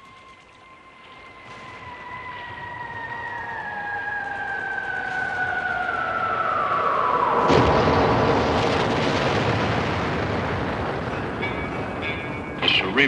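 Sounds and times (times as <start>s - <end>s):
explosion with rumble: 6.6s - 13.0s.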